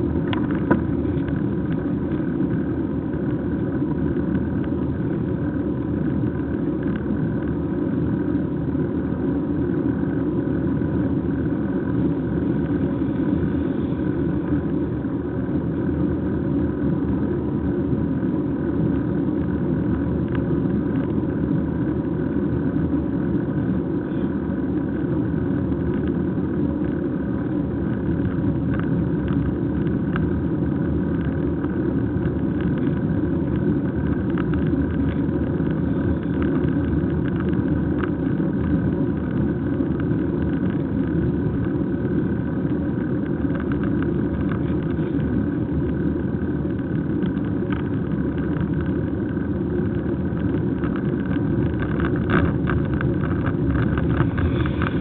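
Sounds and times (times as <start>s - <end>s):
road rumble: 0.0s - 55.0s
wind rush on microphone: 0.0s - 55.0s.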